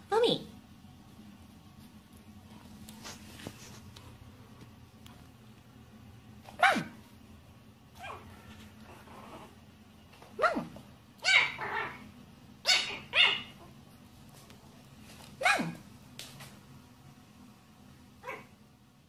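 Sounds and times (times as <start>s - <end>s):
puppy yapping: 6.5s - 7.0s, 8.0s - 8.4s, 10.4s - 13.7s, 15.4s - 15.8s, 18.2s - 18.5s.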